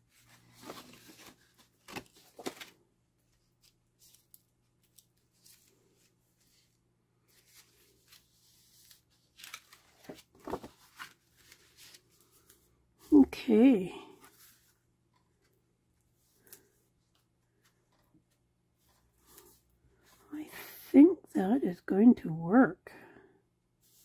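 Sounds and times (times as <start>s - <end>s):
paper rustling and sliding: 0.0s - 2.8s, 3.6s - 12.6s.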